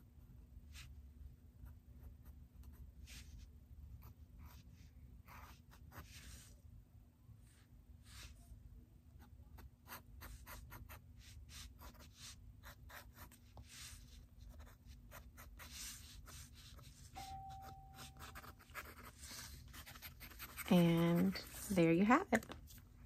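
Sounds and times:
marker scratching on paper: 2.6 - 6.5, 9.2 - 22.2.

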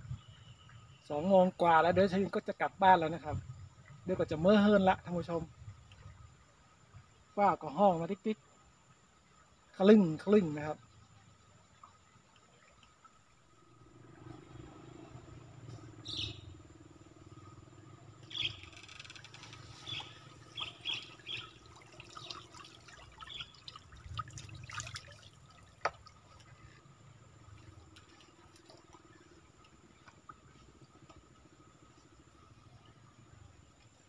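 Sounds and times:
water trickling and dripping: 0.1 - 34.0
small water splashes: 8.5 - 34.0.

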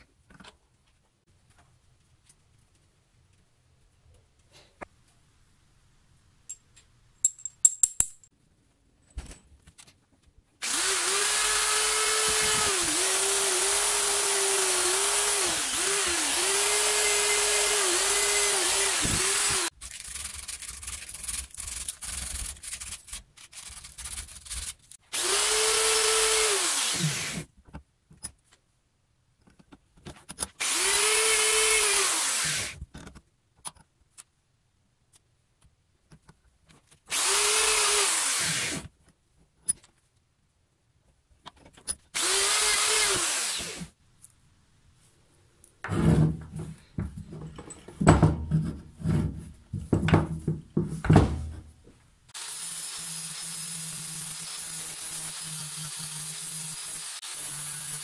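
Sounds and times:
drill wire-brushing steel: 10.6 - 27.5, 30.6 - 32.8, 37.1 - 38.8, 42.2 - 43.9, 52.3 - 58.0.

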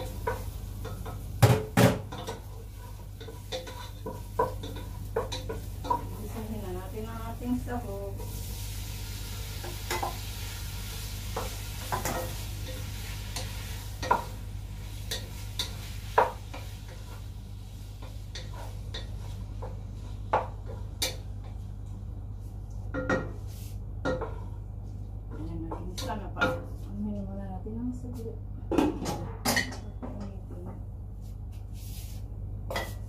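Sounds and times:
food sizzling: 0.0 - 21.8
steady low hum: 0.0 - 33.0
spatula scraping in frying pan: 2.1 - 21.2.

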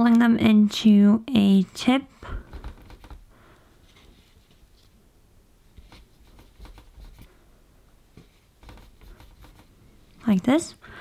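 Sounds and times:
fingers rubbing clay on wood: 5.8 - 7.3, 8.6 - 9.8.

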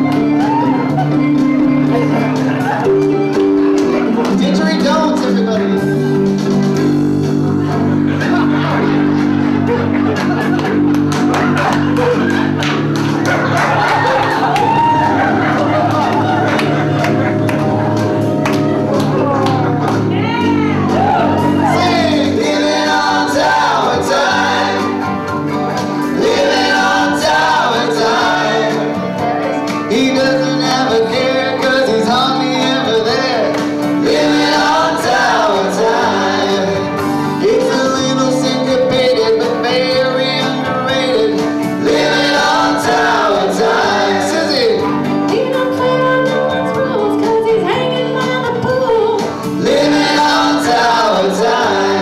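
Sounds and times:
live band playing: 0.0 - 52.0
men and women singing together: 21.0 - 52.0.

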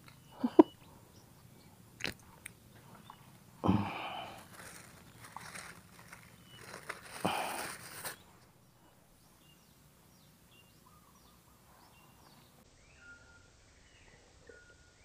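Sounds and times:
bird chirping: 0.0 - 15.0
plastic bag crinkling: 4.0 - 8.6.

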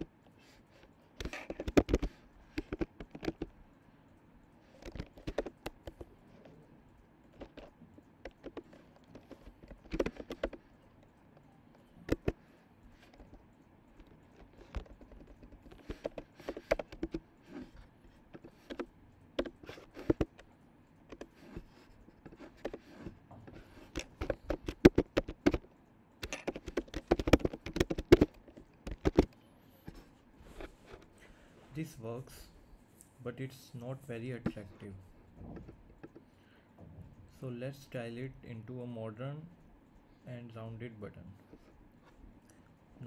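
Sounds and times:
typing on computer keyboard: 1.2 - 3.5, 4.6 - 29.4.

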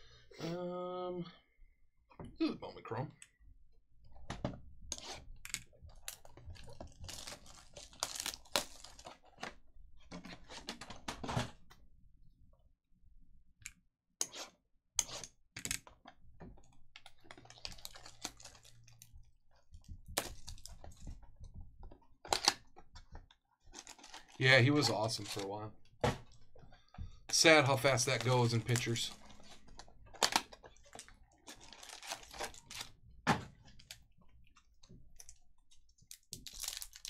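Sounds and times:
packaging crinkling and tearing: 6.0 - 9.6, 17.0 - 19.2, 20.1 - 21.1, 23.7 - 25.6, 27.3 - 33.0, 36.1 - 37.0.

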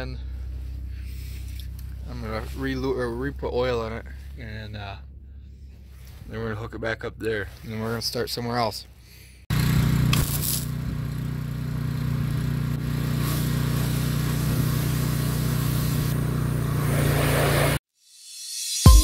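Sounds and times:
pressure washer jet hissing: 9.5 - 10.9, 12.3 - 17.8.

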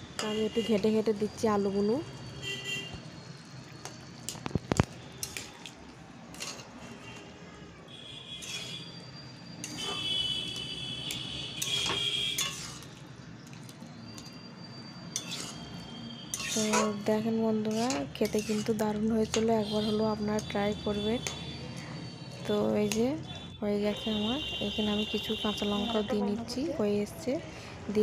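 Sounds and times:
metal spatula scraping a pan: 6.3 - 7.2, 8.3 - 10.2, 11.6 - 12.9, 15.1 - 21.5.

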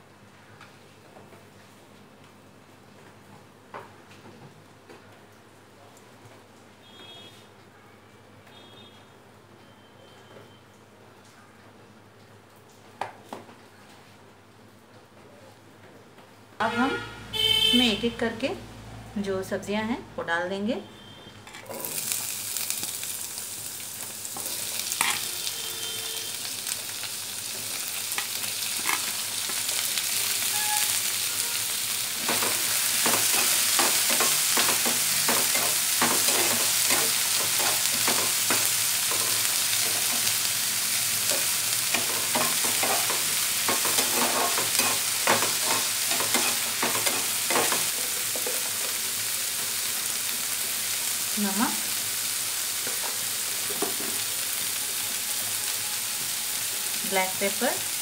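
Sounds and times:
vegetables sizzling in oil: 21.5 - 58.0
spatula scraping and tapping pan: 24.4 - 25.3, 32.2 - 40.3, 41.3 - 49.0.

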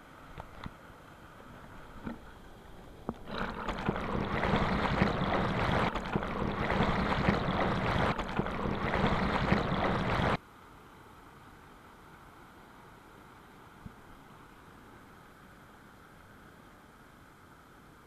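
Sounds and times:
water rushing splash: 3.1 - 10.4.

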